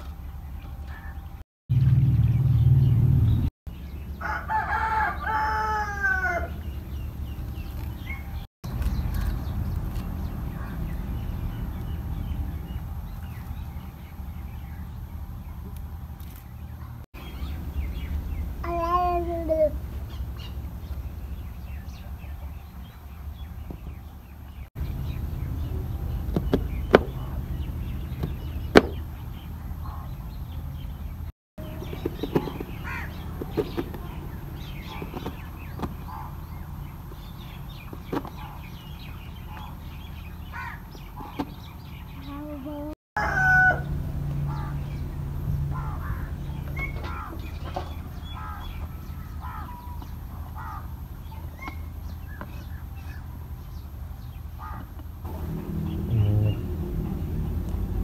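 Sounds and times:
birds chirping: 0.0 - 58.0
rooster crowing: 4.1 - 6.7, 43.2 - 44.8
steady low hum: 6.1 - 43.0, 43.7 - 58.0.

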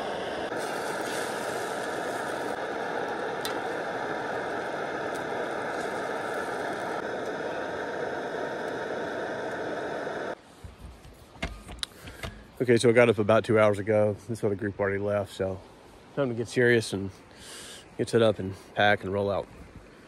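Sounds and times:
steady rushing noise: 0.0 - 10.4.

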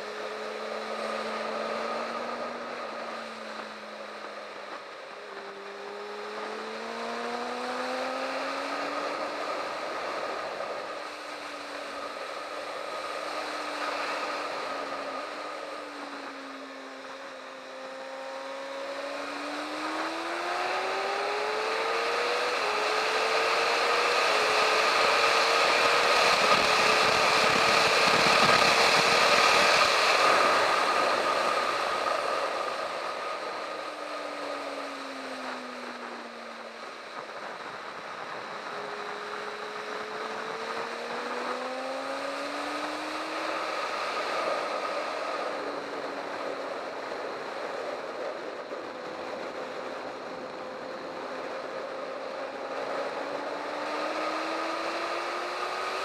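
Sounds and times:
motorcycle engine accelerating: 0.0 - 56.0
wind rush: 24.4 - 34.3.

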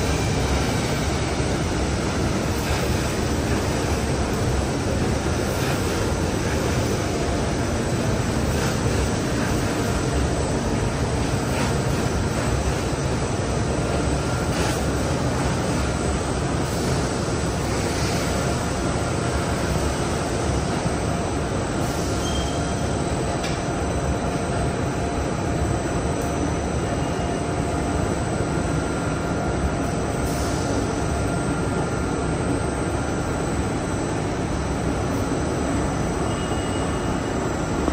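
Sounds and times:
faint high whines: 35.2 - 37.9.

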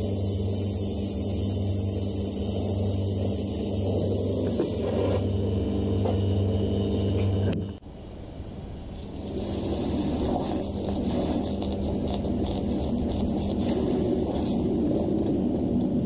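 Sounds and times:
gas torch flame hissing: 0.0 - 5.3, 8.9 - 16.0
low machine hum: 0.0 - 16.0.

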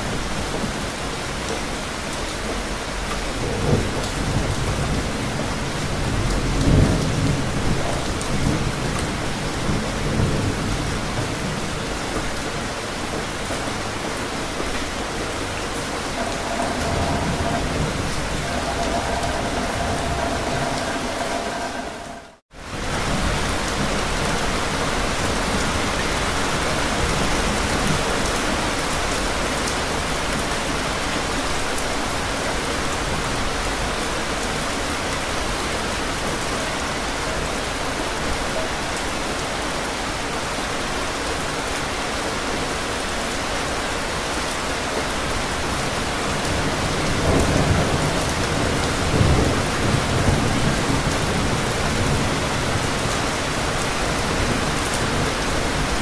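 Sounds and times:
heavy rain pouring: 0.0 - 56.0
thunder rumbling: 15.7 - 23.9.

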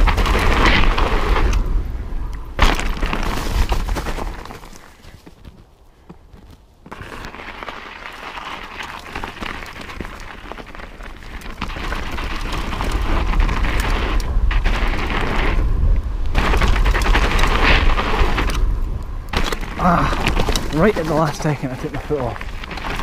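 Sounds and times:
bike tyres crunching over snow: 0.0 - 23.0.

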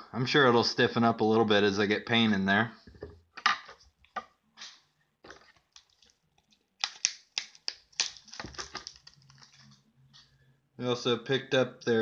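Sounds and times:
packaging crackling: 5.3 - 9.8.

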